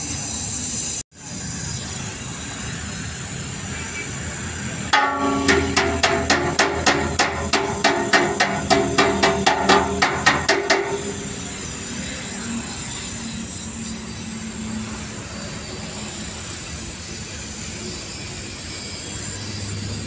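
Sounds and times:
hammer tapping on metal tank: 4.9s - 11.3s.

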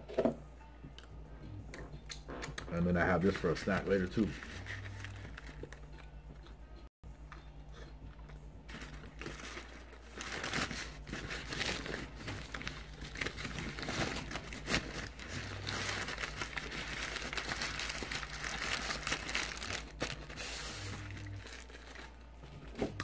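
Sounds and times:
paper wrapper crumpling: 3.4s - 6.1s, 8.7s - 22.2s.

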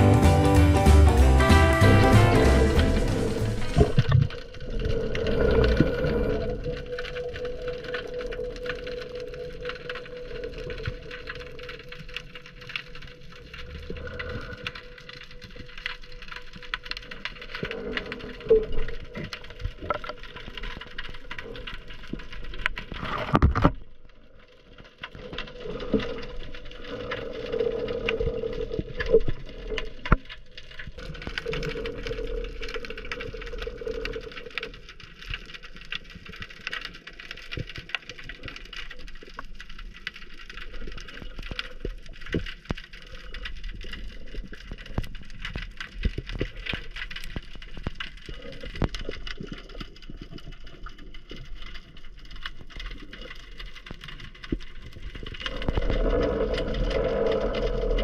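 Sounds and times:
loud rush: 0.0s - 4.0s
underwater crackle of clicks: 3.7s - 58.0s.

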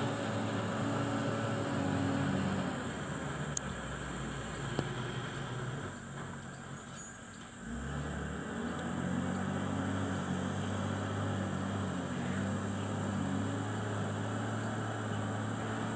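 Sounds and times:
heavy diesel engines working hard: 0.0s - 15.9s.

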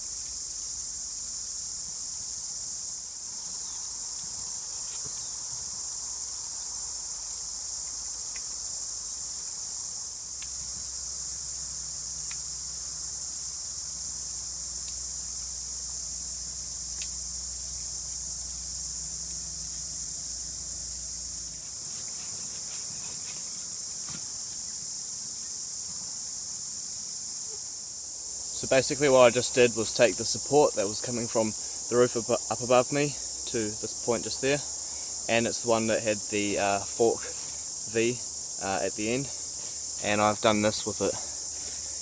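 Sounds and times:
cicadas chorus: 0.0s - 42.0s.

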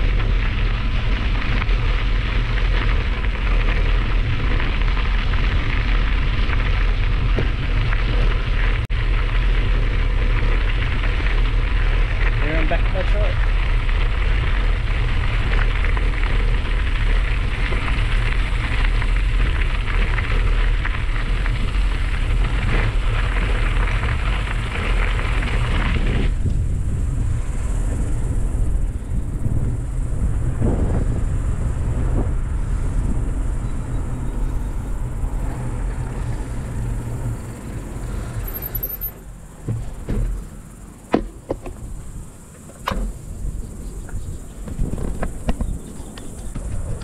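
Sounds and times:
bicycle tyres crunching on gravel: 0.0s - 47.0s
wind rumbling on microphone: 0.0s - 47.0s.

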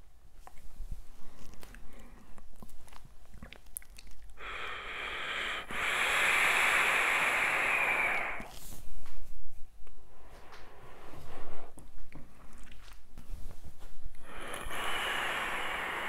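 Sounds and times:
hissing draw on a vape: 4.9s - 8.6s, 14.2s - 16.0s.

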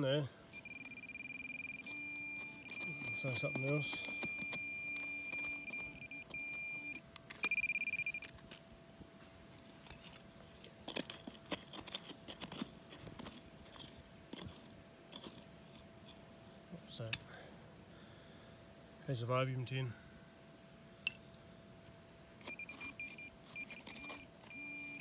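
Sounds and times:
fast pulsing beep: 0.5s - 8.2s, 22.4s - 25.0s
metal detector probe tone: 0.5s - 8.3s, 22.4s - 25.0s
fingers digging through soil: 9.5s - 16.2s.

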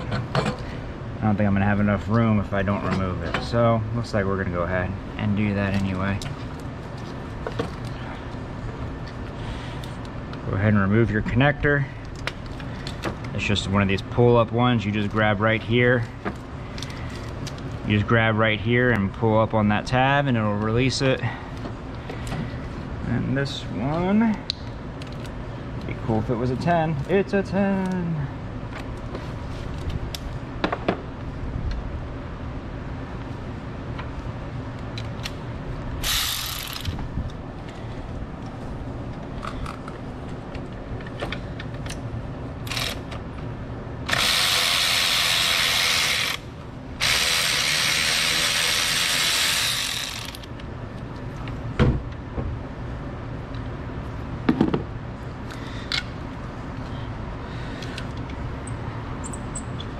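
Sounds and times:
electric ratchet spinning: 36.0s - 37.0s, 42.6s - 43.1s, 44.1s - 50.5s.

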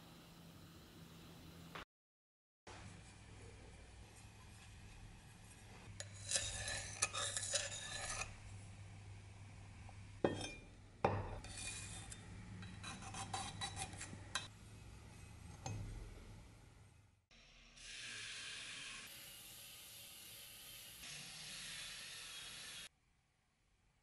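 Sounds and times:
cleaver scraping on wood: 6.0s - 8.4s.

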